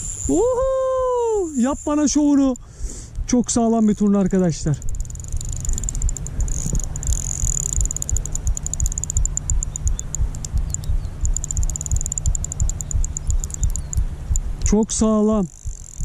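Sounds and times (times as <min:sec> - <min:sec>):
fishing reel rapid clicking: 0:00.0 - 0:02.7, 0:03.7 - 0:16.0
dull uneven thumping: 0:04.8 - 0:14.8.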